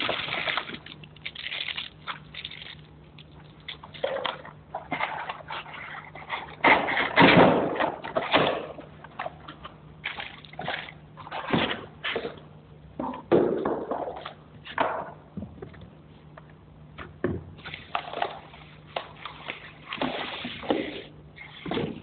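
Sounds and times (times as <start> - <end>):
plastic bag crinkling: 0.0 - 4.0.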